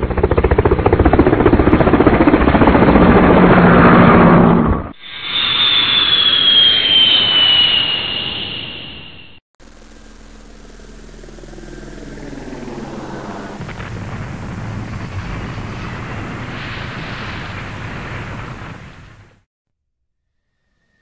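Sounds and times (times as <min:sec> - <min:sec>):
jet engine whine and roar: 0:00.0 - 0:19.5.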